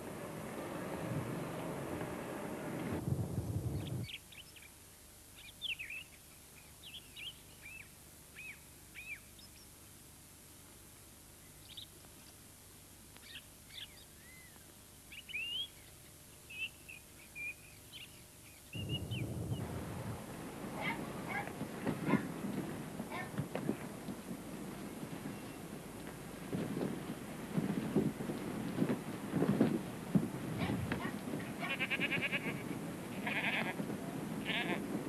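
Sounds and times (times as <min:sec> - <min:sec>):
loud low noise: 0:02.9 - 0:04.1, 0:18.8 - 0:22.5
small birds chirping: 0:13.2 - 0:26.0.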